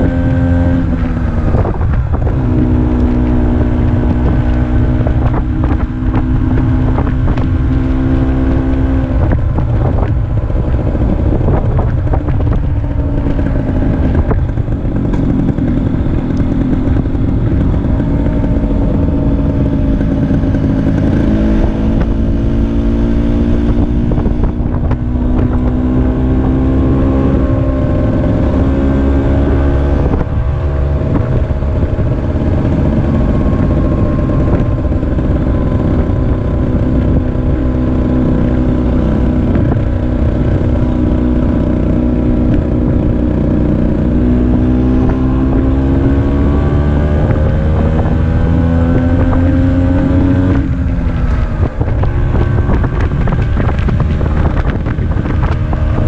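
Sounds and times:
scooter engine running: 0:00.0 - 0:56.0
wind rushing over microphone: 0:00.0 - 0:56.0.

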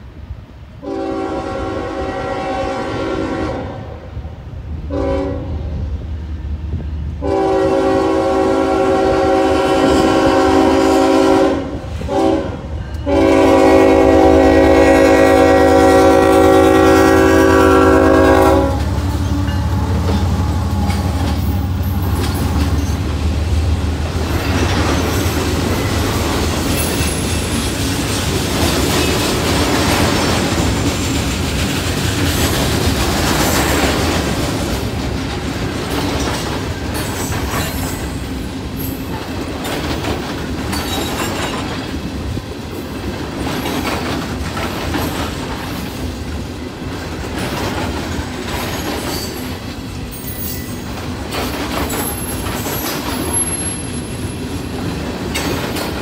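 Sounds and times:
train rumbling past: 0:00.0 - 0:56.0
locomotive air horn: 0:00.8 - 0:04.1, 0:04.9 - 0:05.6, 0:07.2 - 0:22.2
wheels clattering on rails: 0:18.2 - 0:56.0.

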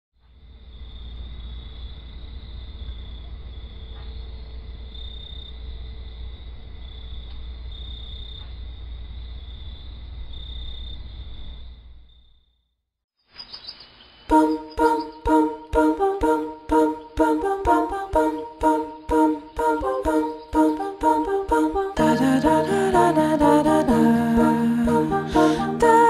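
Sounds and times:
insects trilling: 0:00.6 - 0:12.5, 0:13.4 - 0:16.2
loud music: 0:22.0 - 0:26.0.

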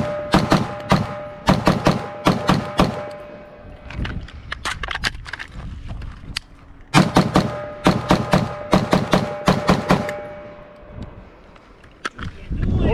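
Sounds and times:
rifle shots: 0:00.0 - 0:03.3, 0:06.9 - 0:10.4
rifle handling clicks and knocks: 0:03.8 - 0:06.9.

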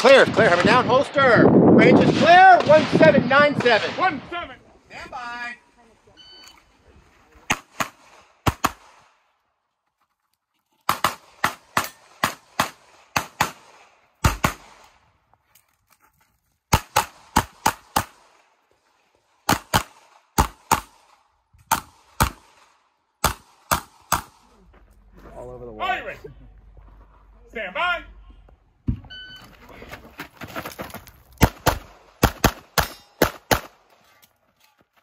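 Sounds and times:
rapid pistol shots: 0:07.5 - 0:09.0, 0:10.9 - 0:14.8, 0:16.7 - 0:18.4, 0:19.4 - 0:24.4, 0:31.4 - 0:33.8.

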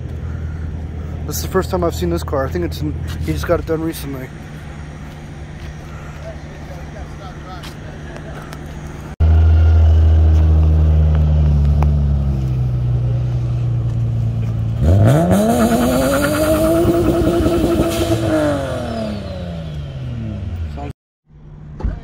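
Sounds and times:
car engine revving: 0:08.3 - 0:20.9.

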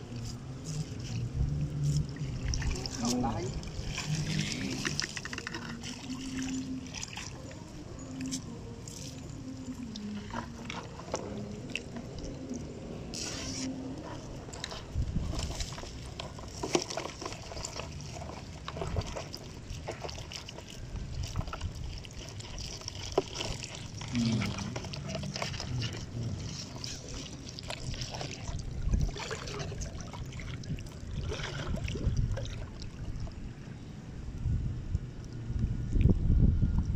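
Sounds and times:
water dripping and splashing: 0:00.0 - 0:33.8.

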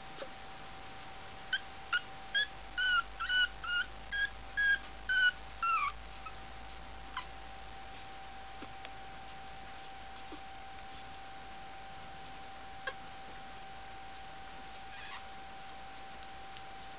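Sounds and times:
puppy yipping: 0:01.5 - 0:06.4, 0:14.9 - 0:15.3.

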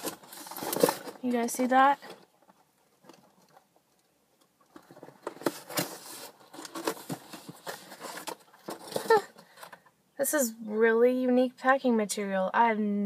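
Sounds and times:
cardboard pieces clattering and rustling: 0:00.0 - 0:03.7, 0:04.6 - 0:09.8.

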